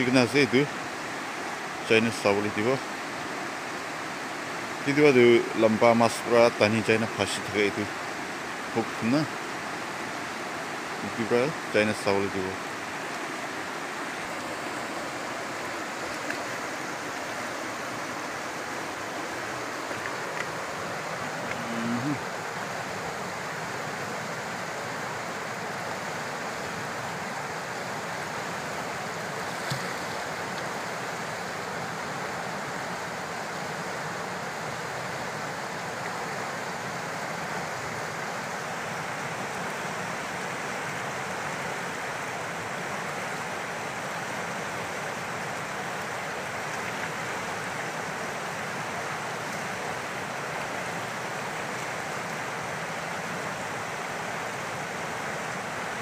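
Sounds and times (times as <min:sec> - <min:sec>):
river water rushing over rapids: 0:00.0 - 0:56.0.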